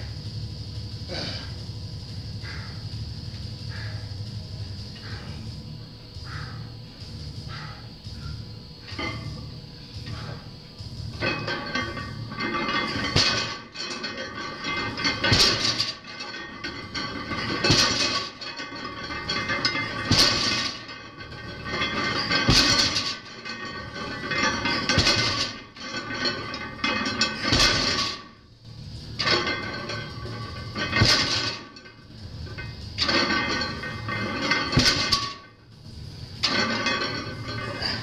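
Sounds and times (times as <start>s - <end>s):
barbell plates thudding and clanking: 11.1s - 28.4s, 29.0s - 35.6s, 36.3s - 38.0s.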